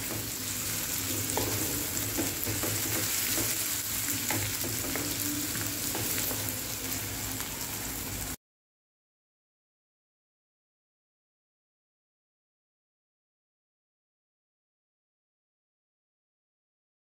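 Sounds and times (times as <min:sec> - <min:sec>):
onion sizzling in hot oil: 0:00.0 - 0:08.4.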